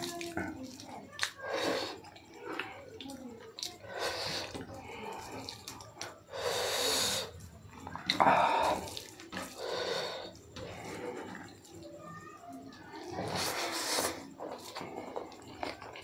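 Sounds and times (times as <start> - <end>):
hand squishing wet rice: 0.0 - 11.8.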